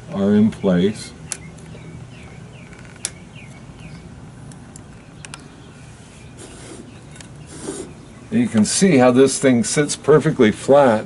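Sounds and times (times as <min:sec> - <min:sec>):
bird chirping: 0:00.0 - 0:09.9.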